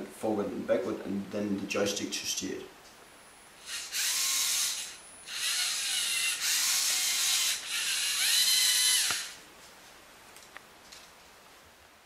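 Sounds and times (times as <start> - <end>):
robot motors whining: 3.6 - 9.4.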